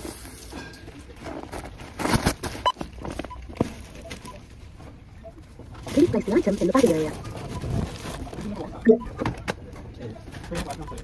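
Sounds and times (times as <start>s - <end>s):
grocery packaging rustling: 0.0s - 4.7s, 5.7s - 8.8s
scanner beep: 5.2s - 7.8s, 8.8s - 9.2s.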